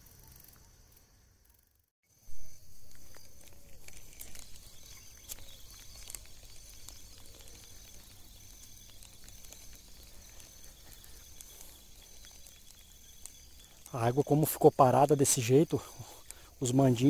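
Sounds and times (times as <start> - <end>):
insects chirring: 0.0 - 17.0
faint clicks: 2.9 - 14.0.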